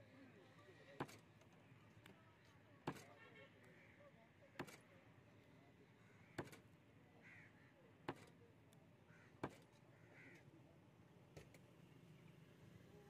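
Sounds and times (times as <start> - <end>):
knife chopping fish on wood: 1.0 - 1.2, 2.9 - 3.1, 4.6 - 4.9, 6.4 - 6.6, 8.0 - 8.4, 9.4 - 9.7
crows cawing: 7.2 - 7.8, 9.1 - 10.5.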